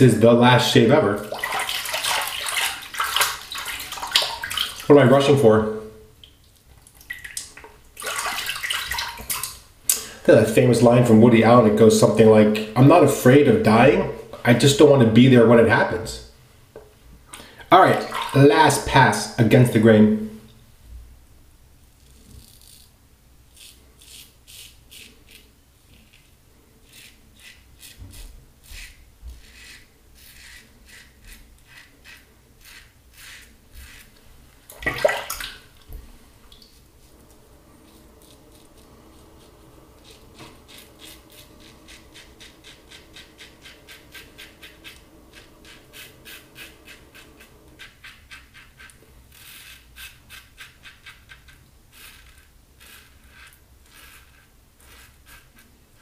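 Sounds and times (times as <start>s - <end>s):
razor scraping stubble: 22.0s - 22.9s, 23.5s - 34.2s, 36.8s - 56.0s.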